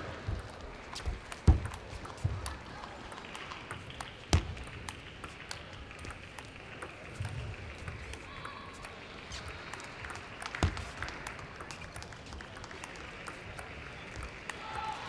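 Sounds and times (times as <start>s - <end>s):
table tennis ball clicks: 0.2s - 14.6s.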